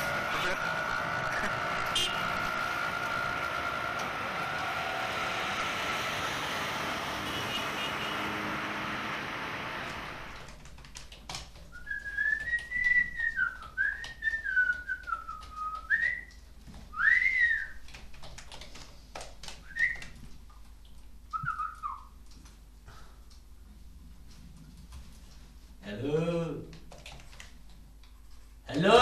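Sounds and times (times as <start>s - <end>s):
person whistling a tune: 11.8s - 16.3s, 17.0s - 17.8s, 19.7s - 20.0s, 21.4s - 22.1s.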